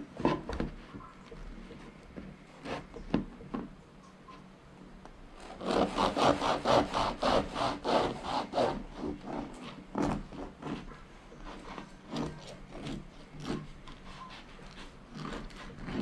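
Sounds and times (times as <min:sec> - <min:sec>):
knife sawing through crusty bread: 0:05.4 - 0:16.0.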